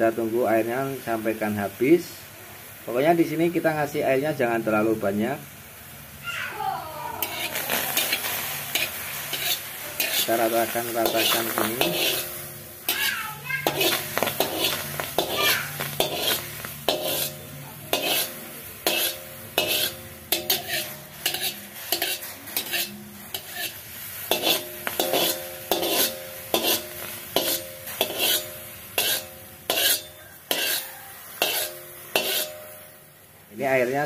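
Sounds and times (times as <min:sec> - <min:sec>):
faint sizzling: 0:00.0 - 0:34.0
spatula scraping a wok: 0:07.2 - 0:33.2.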